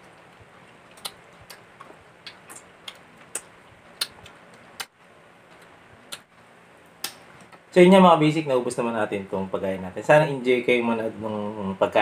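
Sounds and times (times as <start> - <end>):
wet mouth smacks and sucking: 0.9 - 4.9.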